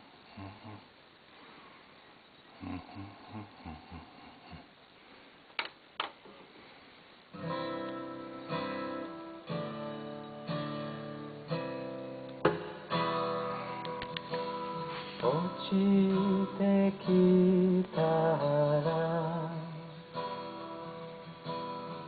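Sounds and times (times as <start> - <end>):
acoustic guitar strumming: 7.3 - 22.0.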